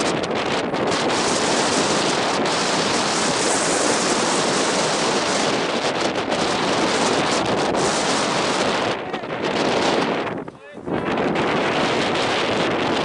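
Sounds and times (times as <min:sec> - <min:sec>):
wind on microphone: 0:00.0 - 0:13.0.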